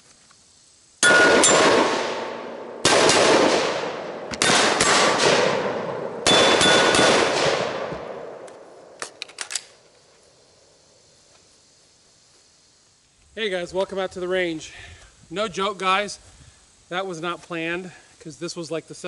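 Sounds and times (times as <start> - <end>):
steel plates ringing: 1.0 - 1.7
rifle shots: 1.0 - 9.8.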